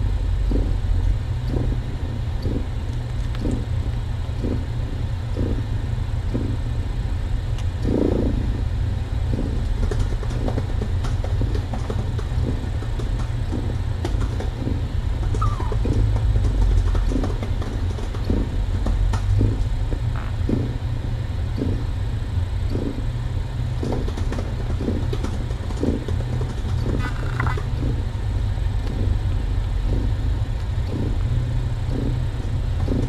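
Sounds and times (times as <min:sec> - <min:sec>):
cat purring: 0:00.4 - 0:02.8, 0:03.4 - 0:03.8, 0:05.3 - 0:06.6, 0:09.3 - 0:10.8, 0:11.4 - 0:20.8, 0:23.8 - 0:28.0, 0:28.8 - 0:33.0
kittens nursing soft sounds: 0:00.4 - 0:06.6, 0:11.5 - 0:20.8, 0:23.8 - 0:28.0, 0:28.8 - 0:32.2.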